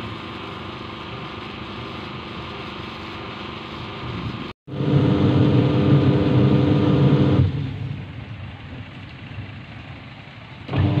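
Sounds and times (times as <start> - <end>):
washing machine motor humming: 4.7 - 8.0, 10.7 - 11.0.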